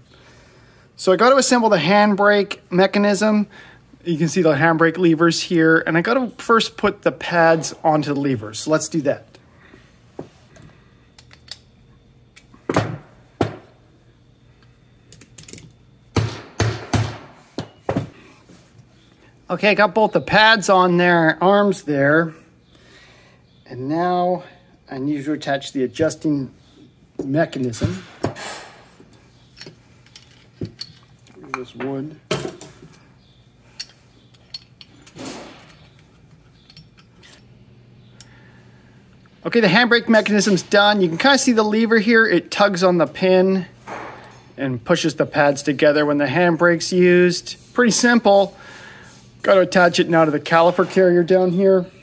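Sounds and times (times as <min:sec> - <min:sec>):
small metal parts clicking: 0:29.5 - 0:31.4, 0:33.7 - 0:37.5.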